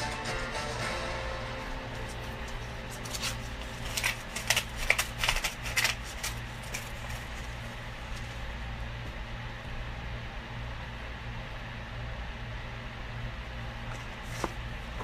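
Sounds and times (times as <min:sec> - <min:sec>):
low electrical hum: 0:00.0 - 0:15.0
sharp clicks and rustles: 0:02.1 - 0:08.4.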